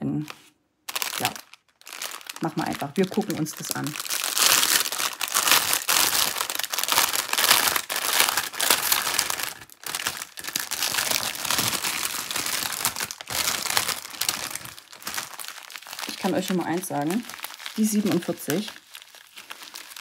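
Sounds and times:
plastic packaging crinkling: 0:00.2 - 0:20.0.

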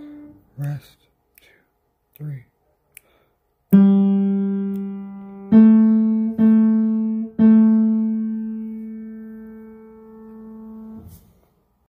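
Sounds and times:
piano notes: 0:00.0 - 0:00.6, 0:03.7 - 0:11.5.

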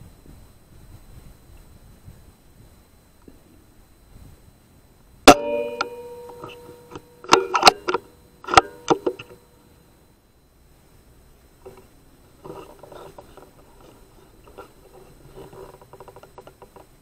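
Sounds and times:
sharp clicks and knocks: 0:05.3 - 0:09.4
metallic clang ringing: 0:05.3 - 0:09.6.

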